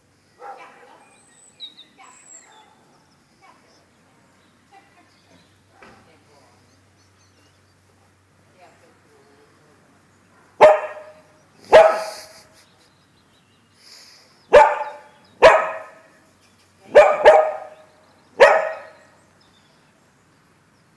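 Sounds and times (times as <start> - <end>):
dog barking: 0.4 - 1.1, 2.4 - 2.9, 5.7 - 6.0, 10.4 - 12.3, 14.5 - 16.2, 16.9 - 19.1.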